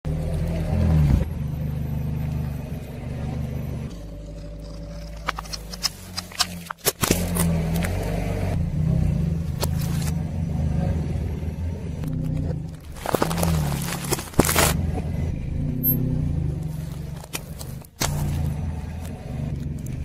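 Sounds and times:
car engine idling: 0:00.1 - 0:20.0
objects cracking under tyre: 0:03.9 - 0:08.1, 0:12.0 - 0:14.9, 0:16.6 - 0:20.0.

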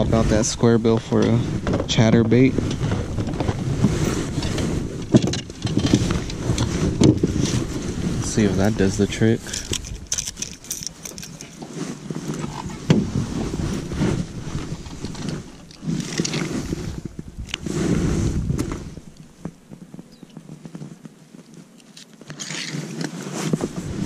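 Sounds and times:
wind buffeting microphone: 0:00.0 - 0:21.0, 0:23.4 - 0:24.0
fishing tackle clicks: 0:09.5 - 0:11.6.

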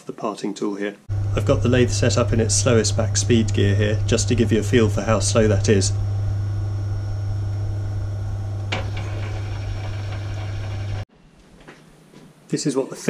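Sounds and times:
lathe motor hum with gear whine: 0:01.1 - 0:11.1.

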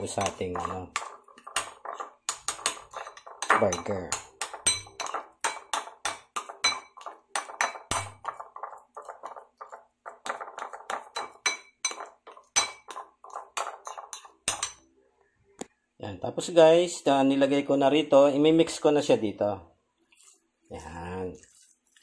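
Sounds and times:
metal spoon clinking in bowl: 0:00.0 - 0:14.8.

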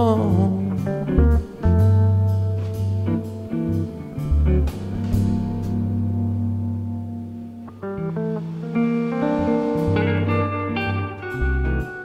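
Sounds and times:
guitar-led music: 0:00.0 - 0:12.0
sharp hits: 0:03.4 - 0:11.3.

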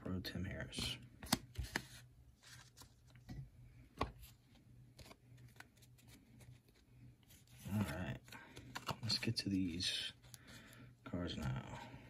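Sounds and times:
cards rustling: 0:00.7 - 0:03.3, 0:04.0 - 0:10.8.

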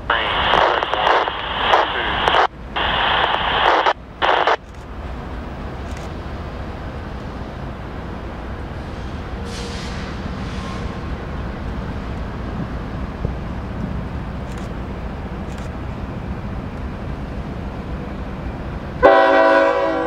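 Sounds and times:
radio transmission on a scanner: 0:00.0 - 0:04.6.

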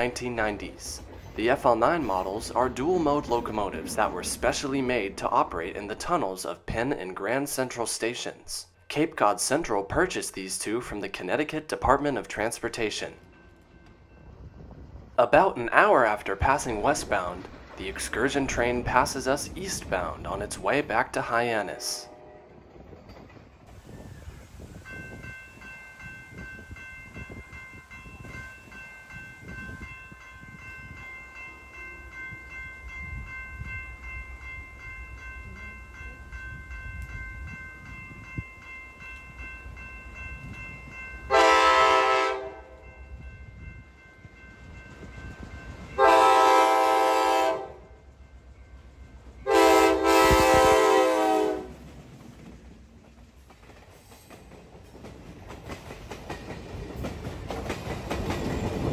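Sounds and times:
low rumble of train: 0:00.0 - 0:58.9
train air horn blasts: 0:22.0 - 0:22.7, 0:41.3 - 0:42.8, 0:46.0 - 0:48.0, 0:49.4 - 0:51.8.

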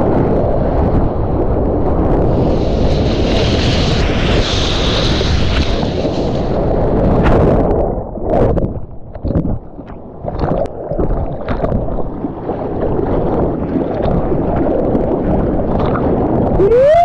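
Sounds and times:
wind on microphone: 0:00.0 - 0:17.0
rushing sloshing water: 0:08.3 - 0:16.7
water splashes: 0:08.7 - 0:16.7.

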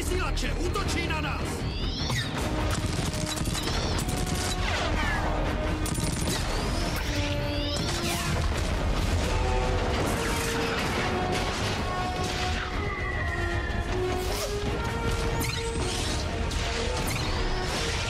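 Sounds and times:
orchestral score: 0:00.0 - 0:18.0
gunfire bursts: 0:02.4 - 0:05.0.

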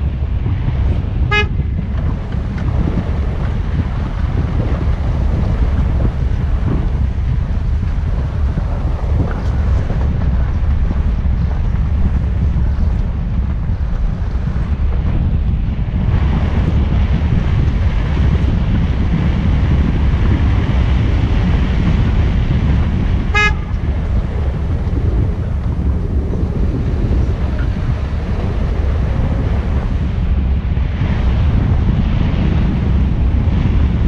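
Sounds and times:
low road rumble: 0:00.0 - 0:34.0
wind rushing over microphone: 0:00.0 - 0:34.0
short horn toot: 0:01.3 - 0:01.6, 0:23.3 - 0:23.9.

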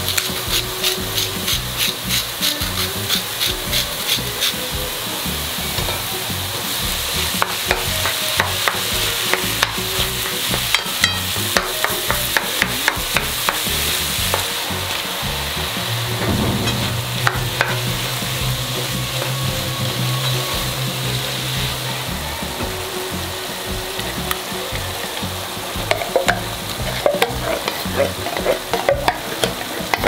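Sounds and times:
meat and vegetables sizzling: 0:00.0 - 0:30.0
wooden spatula stirring and tapping: 0:07.4 - 0:14.4, 0:17.2 - 0:17.9, 0:25.8 - 0:30.0.

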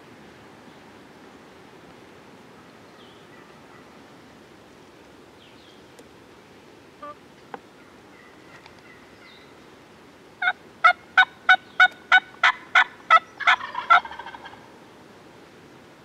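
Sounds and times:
turkey yelping: 0:10.4 - 0:14.6.

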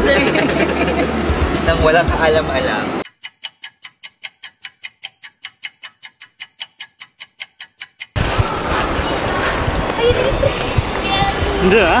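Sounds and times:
clock ticking fast: 0:03.0 - 0:08.6.

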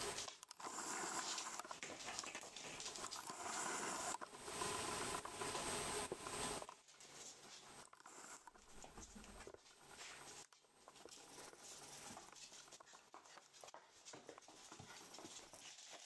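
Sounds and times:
rustling noise: 0:00.0 - 0:16.0
puppy claws ticking on floor: 0:08.6 - 0:16.0.

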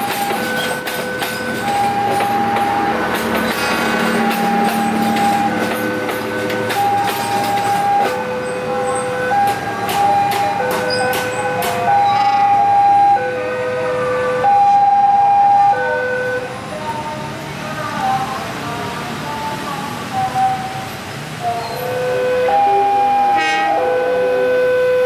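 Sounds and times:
wheels clanking over rail joints: 0:00.0 - 0:13.0
train wheels squealing: 0:10.7 - 0:12.6, 0:21.5 - 0:21.9.

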